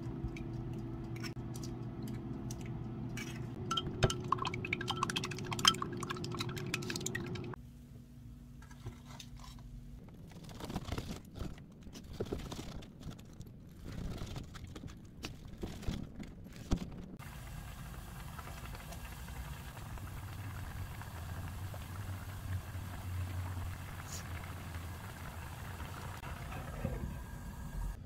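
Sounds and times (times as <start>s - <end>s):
stew bubbling in a pan: 17.2s - 28.0s.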